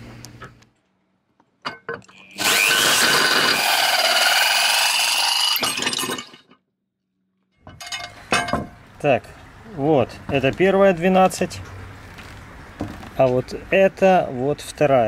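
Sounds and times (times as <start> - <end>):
cordless drill whining into metal: 2.1 - 5.7.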